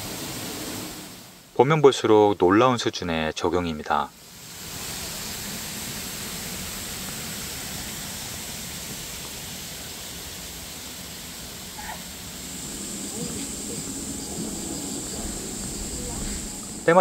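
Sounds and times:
waterfall splashing into pond: 4.2s - 17.0s.

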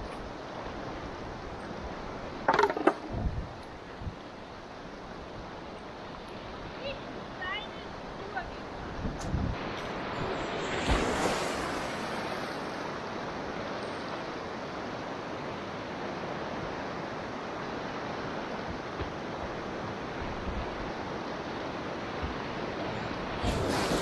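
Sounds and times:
river water rushing: 0.0s - 24.0s
water splash: 9.6s - 13.0s, 23.3s - 24.0s.

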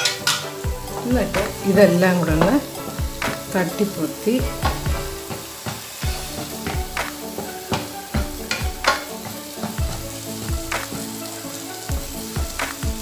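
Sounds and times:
spatula scraping frying pan: 0.0s - 12.3s
sauce sizzling: 0.0s - 13.0s.

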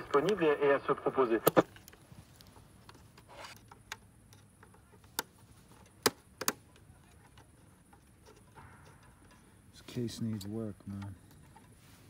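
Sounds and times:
sharp clicks: 0.0s - 0.6s.

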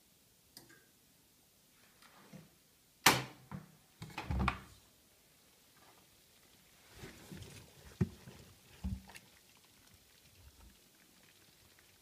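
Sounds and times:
door knocks and clunks: 3.5s - 4.6s.

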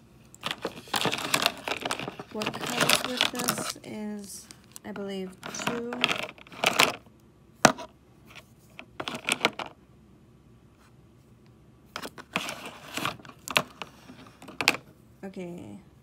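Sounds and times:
plastic pens clicking and clattering: 0.3s - 3.9s, 4.6s - 7.0s, 9.0s - 9.8s, 12.0s - 14.8s.

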